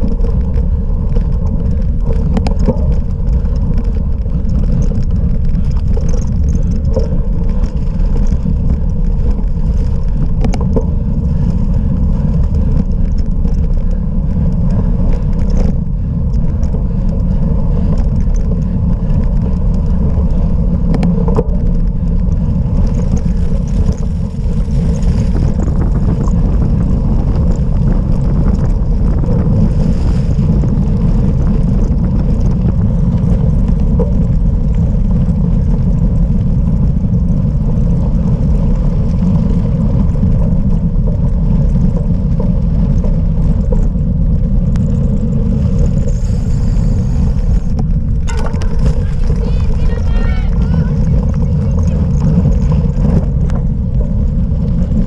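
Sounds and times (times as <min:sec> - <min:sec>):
bike rattling over rough ground: 0:00.0 - 0:55.0
wind buffeting microphone: 0:00.0 - 0:55.0.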